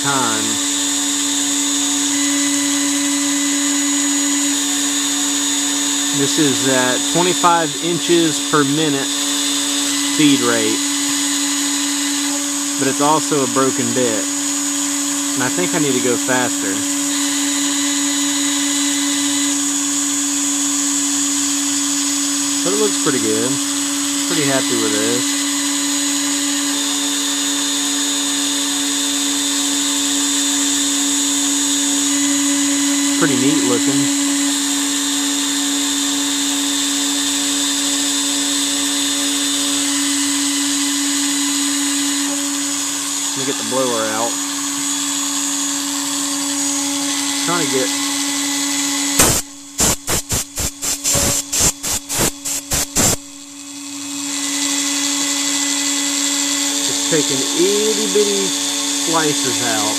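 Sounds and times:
bit etching plexiglass: 0.0 - 20.1, 37.2 - 53.4
short air blasts from blower: 0.0 - 20.4, 36.7 - 59.9
router spindle whining: 0.0 - 59.9.

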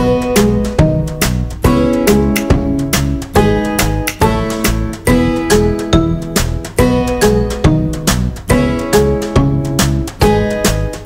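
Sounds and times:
rhythmic chords music: 0.0 - 11.0.

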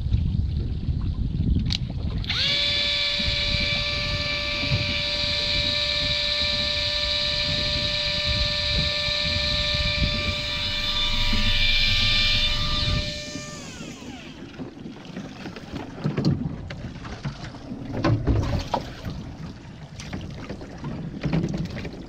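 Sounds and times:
wind and boat rumble: 0.0 - 22.0
electric reel motor whining: 2.2 - 14.6.

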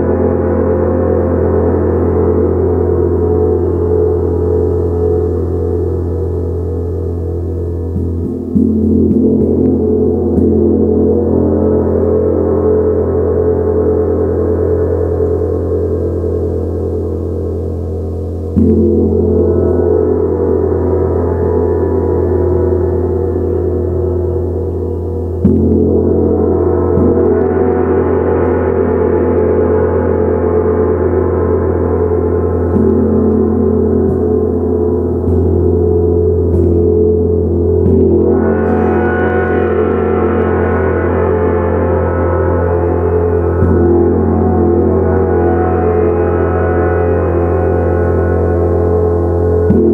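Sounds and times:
gong struck with soft mallet: 32.6 - 49.9.

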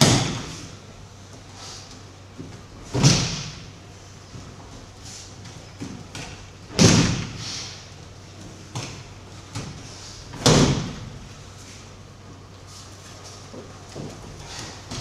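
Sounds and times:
heavy thuds of bodies on mats: 0.0 - 0.7, 2.3 - 7.4, 8.4 - 11.4, 13.4 - 15.0.

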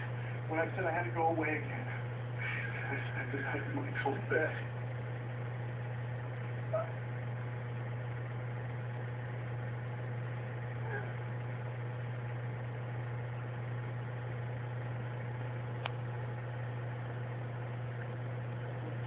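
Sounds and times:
steady low hum: 0.0 - 19.0
faint sharp click: 15.8 - 16.0.

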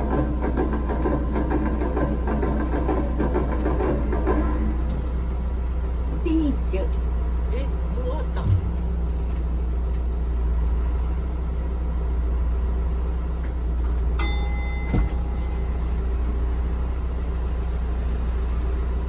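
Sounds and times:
diesel engine rumbling: 0.0 - 19.0
short ringing chime: 14.2 - 15.9.

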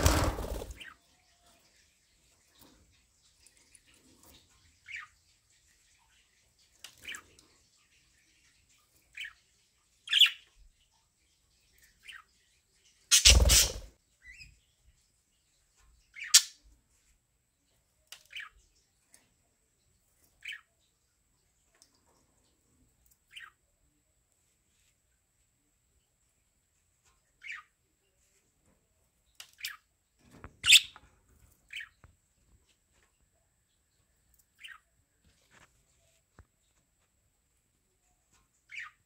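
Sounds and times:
budgerigars chirping and squawking: 12.0 - 14.4, 16.1 - 16.6, 27.4 - 27.7, 30.6 - 31.0, 38.7 - 39.0.

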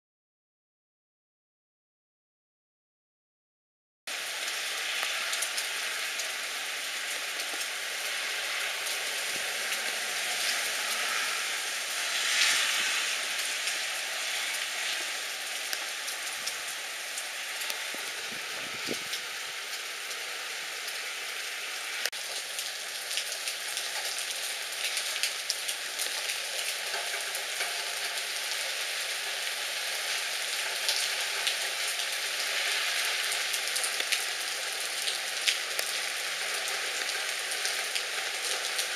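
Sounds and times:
heavy rain hissing: 4.1 - 38.9
raindrops ticking: 15.0 - 19.8.

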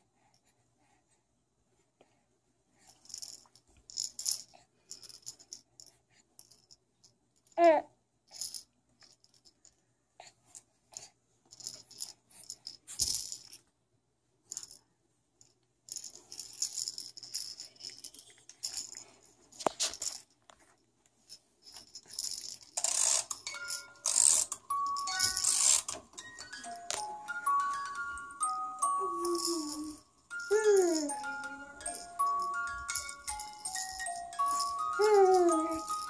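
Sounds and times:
baby rattle socks rattling: 2.8 - 9.8, 10.5 - 13.7, 14.4 - 36.0
crib mobile chiming tune: 22.8 - 36.0.

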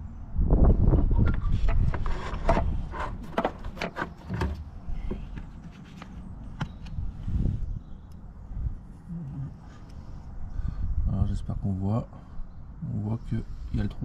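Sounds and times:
handling knocks and rubbing: 1.5 - 7.0.

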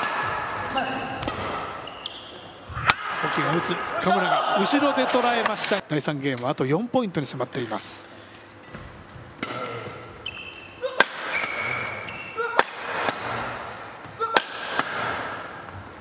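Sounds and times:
racket hitting shuttlecock: 0.0 - 1.9, 2.8 - 3.3, 8.7 - 10.0, 10.9 - 15.8
shoes squeaking on floor: 0.7 - 2.7, 8.6 - 12.4.

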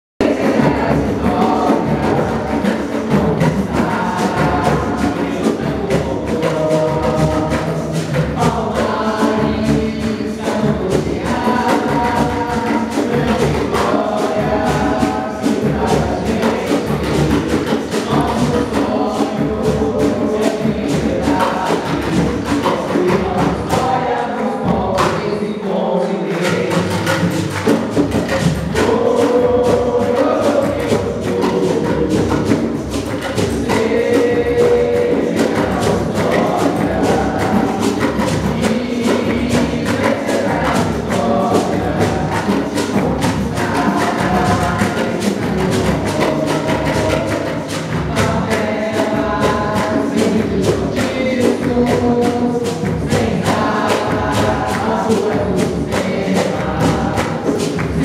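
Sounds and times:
choir singing a hymn: 0.2 - 58.0
hand drums and percussion: 0.2 - 58.0.

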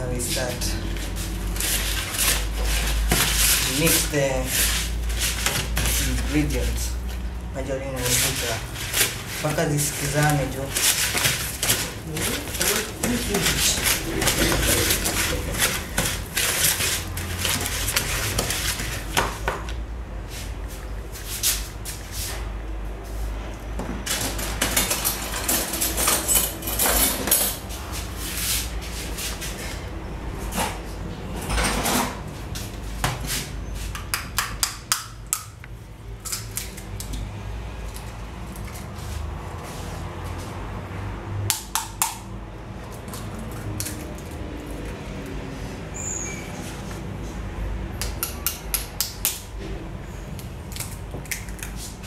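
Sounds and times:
wooden spoon knocking and scraping bowl: 8.0 - 19.8.

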